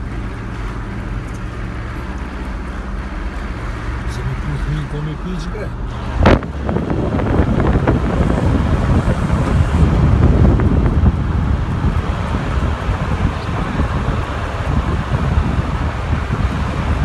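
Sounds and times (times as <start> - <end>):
low rumble of car driving: 0.0 - 17.0
wind buffeting microphone: 5.8 - 17.0.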